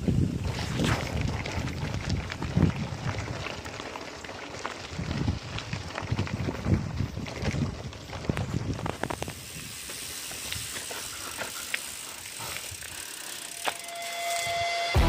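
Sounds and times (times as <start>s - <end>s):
bike rattling over bumps: 0.0s - 14.6s
bike tyres crunching on gravel: 0.0s - 15.0s
steady hiss with ticks: 8.3s - 14.8s.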